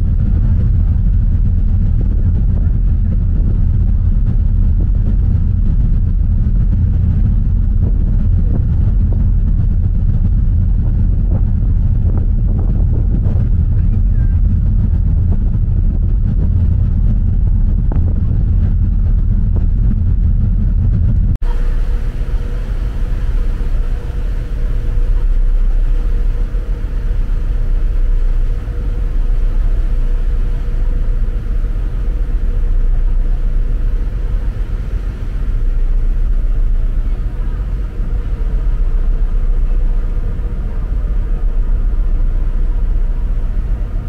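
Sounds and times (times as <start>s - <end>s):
faint steady hum: 0.0s - 44.0s
ferry engines rumbling: 0.0s - 44.0s
wind: 0.0s - 44.0s
rushing water: 21.4s - 44.0s.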